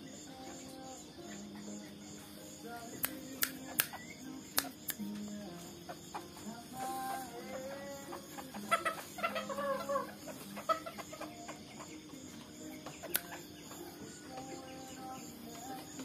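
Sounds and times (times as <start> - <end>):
chickens clucking: 0.0 - 16.0
sharp click: 3.0 - 5.1, 13.0 - 13.4.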